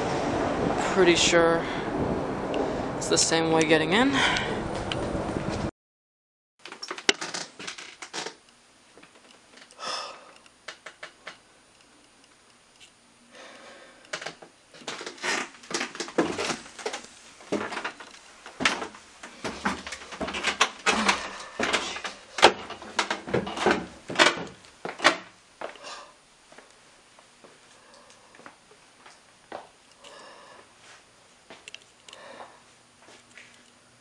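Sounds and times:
bumps against wooden boards: 18.6 - 25.2.

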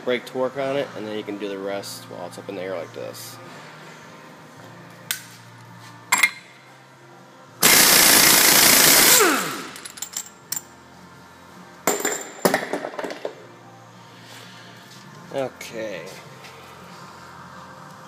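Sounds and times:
impact wrench hammering: 11.9 - 13.2.

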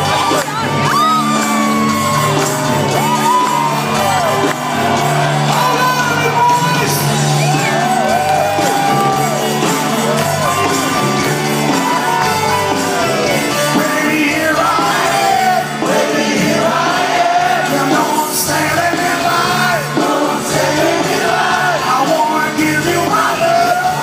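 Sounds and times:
fans shouting and whooping: 0.0 - 24.0
rock band playing and singing: 0.0 - 24.0.

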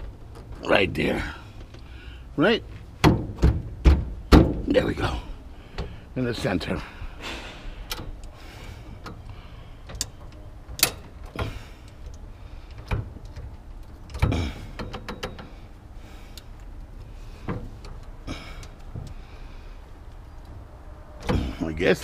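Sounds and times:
ratchet bar clicking and clunking: 9.0 - 15.7.

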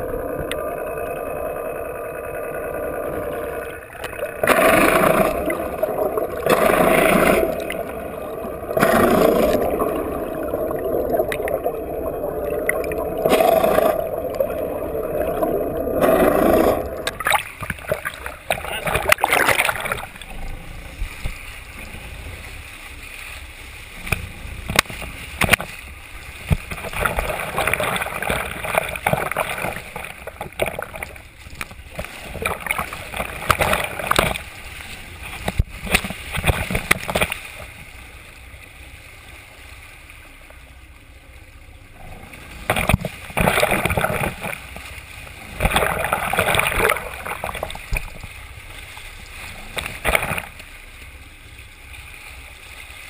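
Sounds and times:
boat engine rumble: 0.0 - 53.0
water splashing along hull: 0.0 - 53.0.

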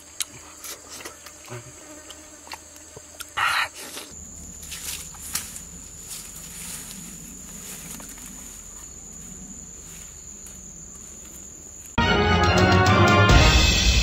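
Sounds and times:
insects buzzing: 0.0 - 12.5
faint rustles: 3.9 - 12.0.

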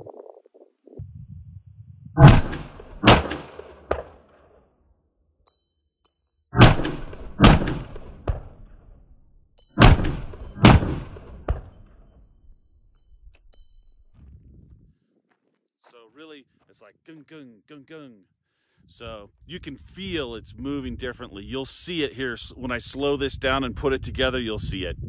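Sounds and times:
rifle shots: 2.2 - 4.6, 6.6 - 8.9, 9.8 - 12.0.

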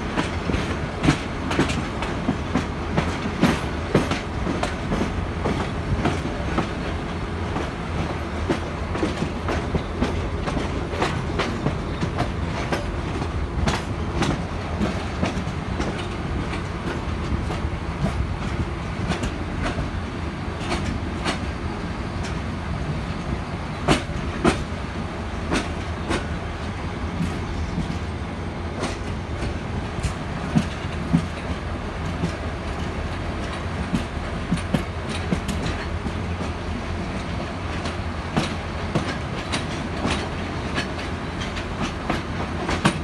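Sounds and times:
train wheels low rumble: 0.0 - 43.0
wheels clanking over rail joints: 0.0 - 43.0.

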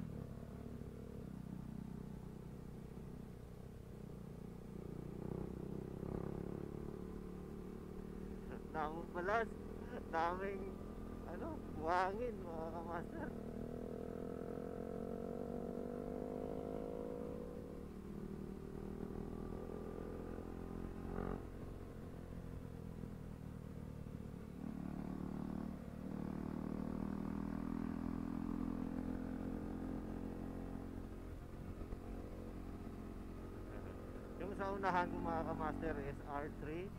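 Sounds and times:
motorcycle engine: 0.0 - 36.9
wind and road rumble: 0.0 - 36.9.

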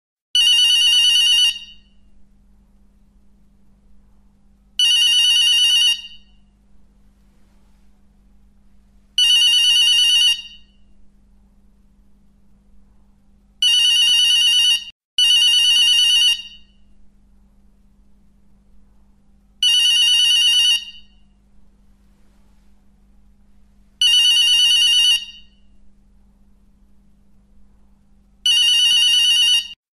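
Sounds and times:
telephone bell ringing: 0.4 - 1.9, 4.8 - 6.3, 9.2 - 10.8, 13.6 - 16.8, 19.6 - 21.1, 24.0 - 25.6, 28.5 - 29.8.

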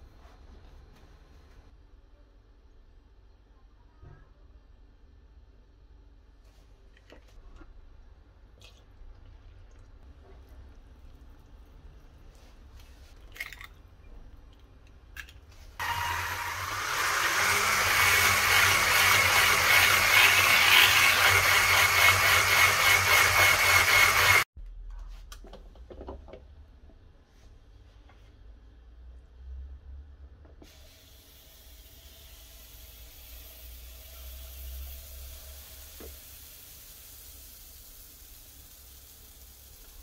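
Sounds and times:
electric mixer whirring: 15.8 - 24.5.

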